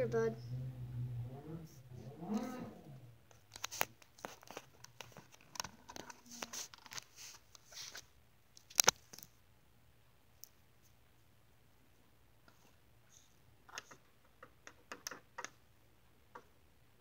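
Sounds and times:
plastic toys clicking and tapping: 13.7 - 15.6.

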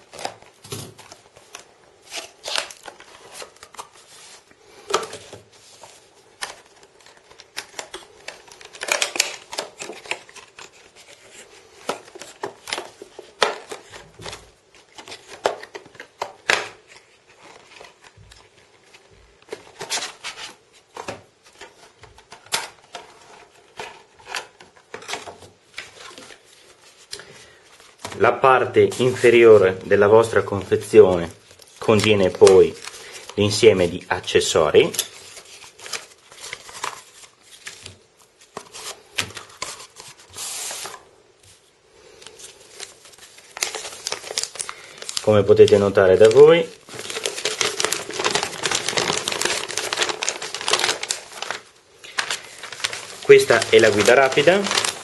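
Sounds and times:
cardboard and plastic packaging handled: 0.0 - 55.0.

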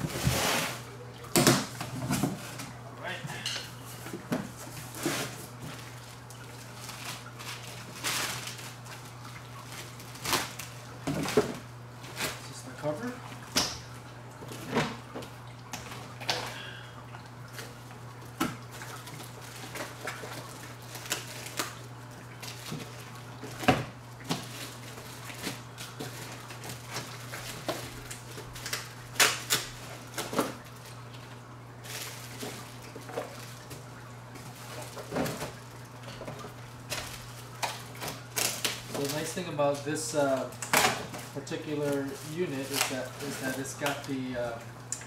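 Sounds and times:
steady low hum: 0.0 - 45.0
plastic wrapping crinkling: 3.9 - 13.2, 17.5 - 23.6, 24.2 - 44.6.

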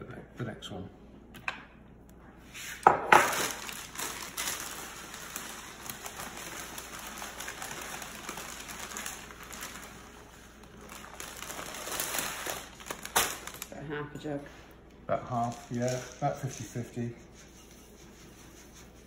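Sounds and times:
plastic bag crinkling: 3.2 - 13.8, 15.3 - 16.4.

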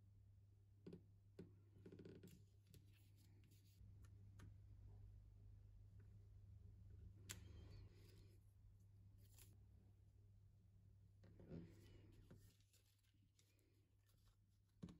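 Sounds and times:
low steady hum: 2.4 - 14.7
paper rustling: 11.8 - 14.8.

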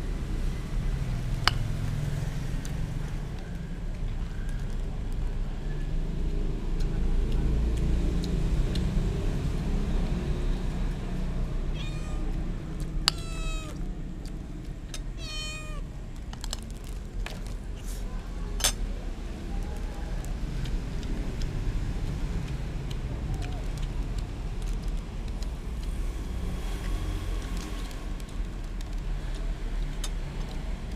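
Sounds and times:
low background hum: 9.0 - 26.0
cat meowing: 11.7 - 12.4, 13.1 - 13.8, 15.2 - 15.9.

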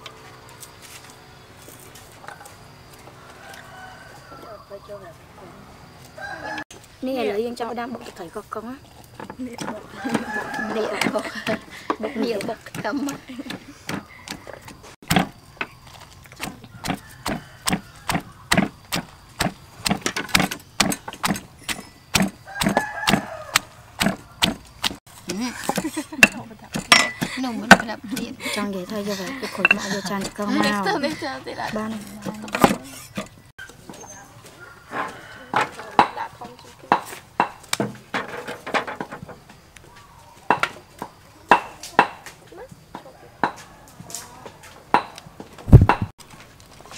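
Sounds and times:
stone pestle pounding in mortar: 16.4 - 25.0, 25.6 - 27.9.

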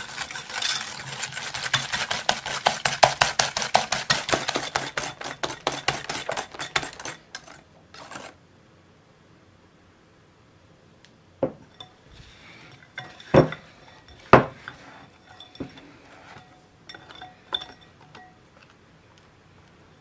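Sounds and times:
whisk clinking against glass bowl: 0.0 - 7.6, 12.7 - 18.4.

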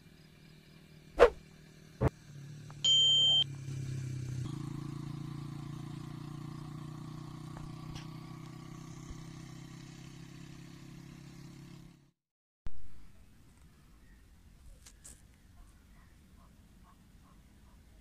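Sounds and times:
low engine hum: 0.0 - 12.1.

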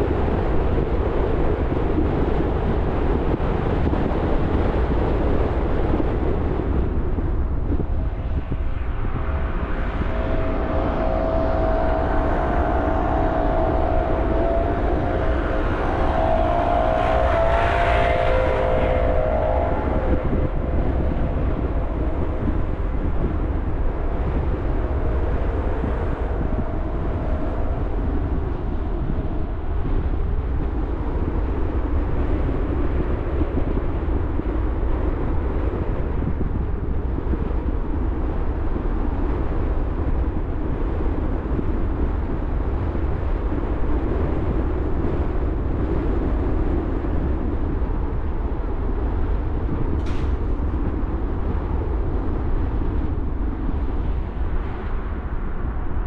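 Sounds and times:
car driving rumble: 7.6 - 31.8
faint humming tone: 8.2 - 32.5.

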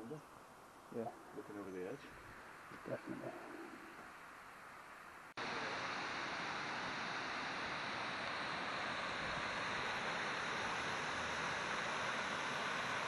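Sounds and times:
faint background hiss: 0.0 - 13.0.

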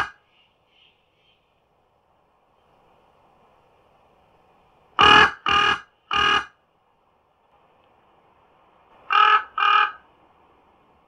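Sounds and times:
crow cawing: 5.0 - 6.5, 9.1 - 10.0.

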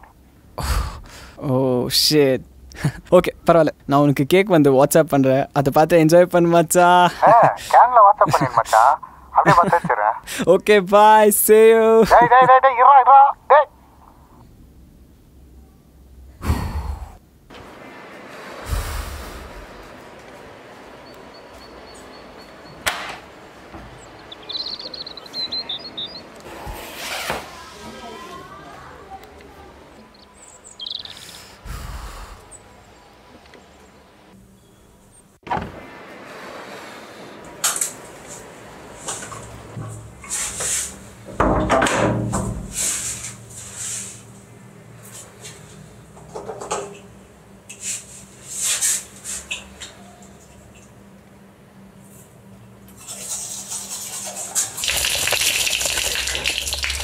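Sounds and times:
background hiss: 0.0 - 46.0, 47.3 - 49.8, 52.1 - 57.0
high chirps: 20.8 - 26.5, 29.9 - 31.5.

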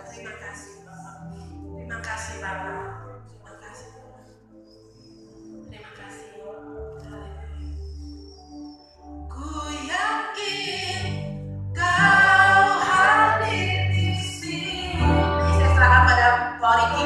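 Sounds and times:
group singing gospel song: 9.9 - 11.2, 11.8 - 17.0
band accompaniment with bass: 14.8 - 16.2.

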